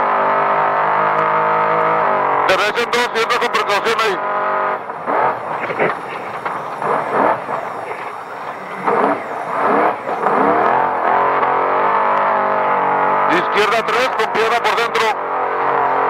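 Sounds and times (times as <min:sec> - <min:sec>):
race vehicle engine revving: 0:00.0 - 0:16.0.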